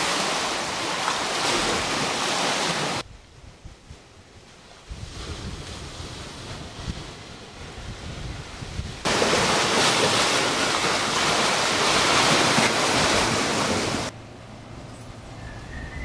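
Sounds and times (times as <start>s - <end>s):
seawater surging among rocks: 0.0s - 3.0s, 5.2s - 14.2s
wind buffeting microphone: 3.0s - 10.8s.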